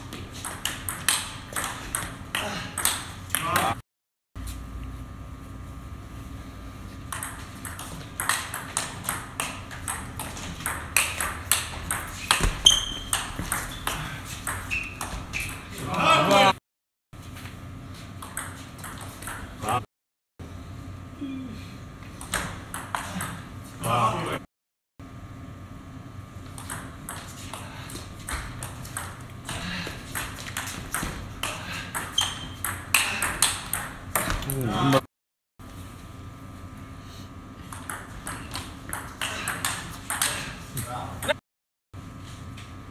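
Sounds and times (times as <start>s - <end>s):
shoe squeaking on floor: 12.4s - 15.8s, 32.2s - 32.6s.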